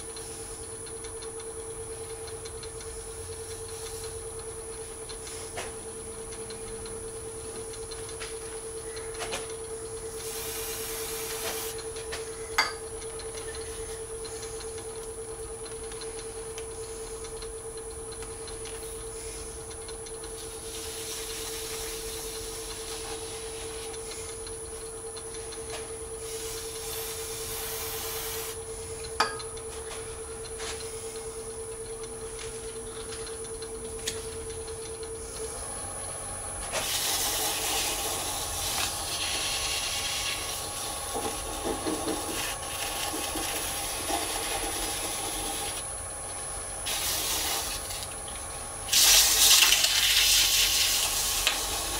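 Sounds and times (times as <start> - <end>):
lathe humming and whining: 0.0 - 51.9
sandpaper hissing on spinning resin: 10.3 - 11.8, 26.3 - 28.6, 36.8 - 40.6, 46.9 - 48.0, 48.9 - 51.9.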